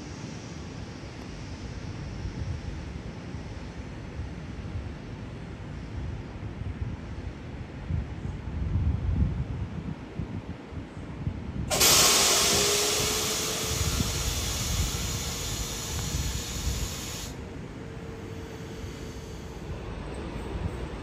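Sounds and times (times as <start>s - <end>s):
wind rumbling on microphone: 5.9s - 11.8s, 12.4s - 21.0s
compressed air hissing: 11.7s - 19.7s.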